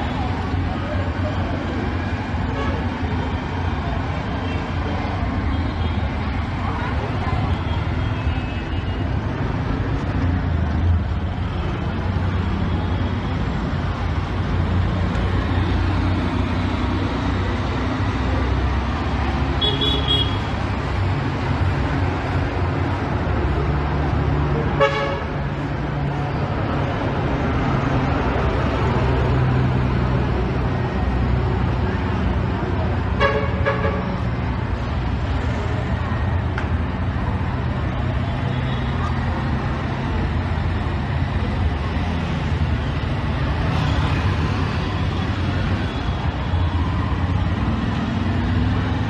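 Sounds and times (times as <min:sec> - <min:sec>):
traffic engines droning: 0:00.0 - 0:49.0.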